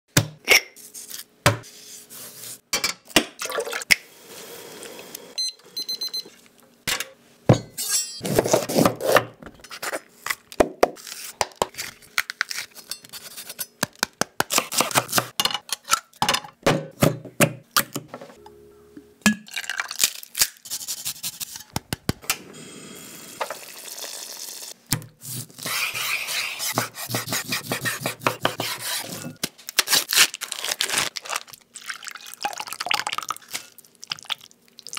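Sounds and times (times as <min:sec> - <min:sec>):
bell pepper snapping and tearing: 0:20.0 - 0:20.6
knife chopping: 0:24.9 - 0:29.4.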